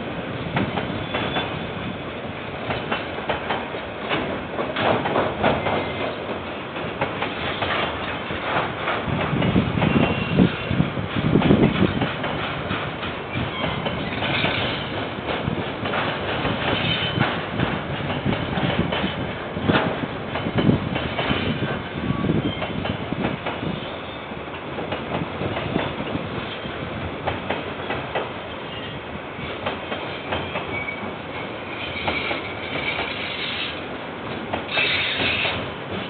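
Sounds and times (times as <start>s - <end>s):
train wheels clacking over rail joints: 0.5s - 1.6s, 2.6s - 36.0s
faint high wheel squeals: 30.4s - 33.7s.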